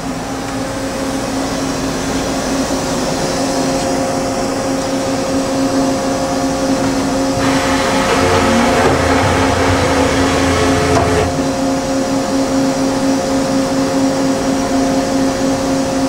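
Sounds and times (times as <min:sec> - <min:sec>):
machine whirring and humming: 0:06.6 - 0:12.4
deeper machine hum: 0:06.9 - 0:12.2.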